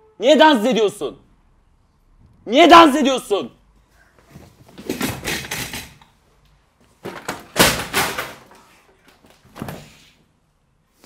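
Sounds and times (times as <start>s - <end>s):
furniture banging and clattering: 4.2s - 6.0s, 6.9s - 10.0s.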